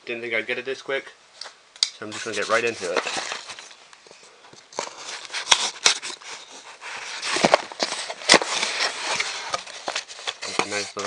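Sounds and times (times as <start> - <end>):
cardboard scraping and rustling: 2.1 - 3.8, 4.7 - 11.0.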